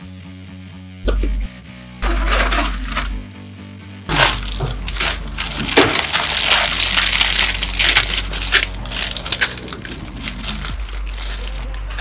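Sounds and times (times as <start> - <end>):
plastic bags rustling: 4.1 - 12.0
plastic wrapping crinkling: 4.1 - 12.0.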